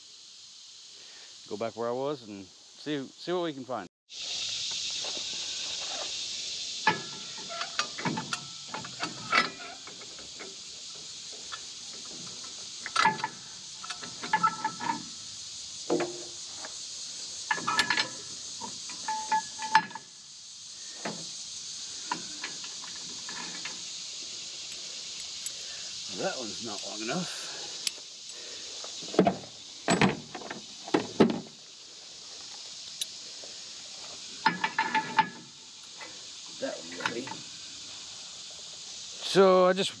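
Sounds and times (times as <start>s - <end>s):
insect chirring: 0.0s - 40.0s
metal bolt clinking: 6.8s - 10.5s, 11.4s - 15.1s, 17.5s - 18.2s, 34.4s - 35.5s.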